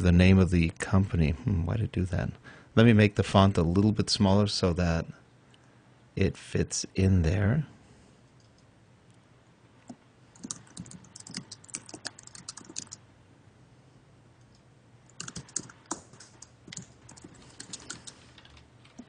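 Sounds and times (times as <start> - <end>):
typing on computer keyboard: 10.4 - 13.0, 15.1 - 19.0.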